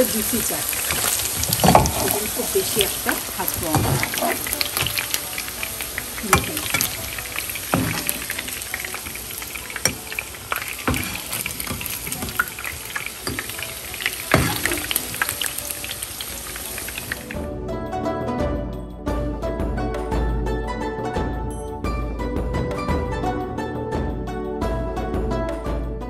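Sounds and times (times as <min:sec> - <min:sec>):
chicken sizzling in hot oil: 0:00.0 - 0:17.4.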